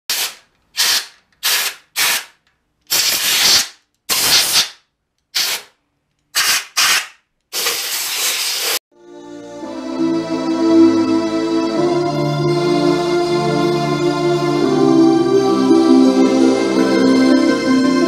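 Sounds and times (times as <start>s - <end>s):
sharp hissing spray bursts: 0.1s - 5.7s, 6.3s - 8.8s.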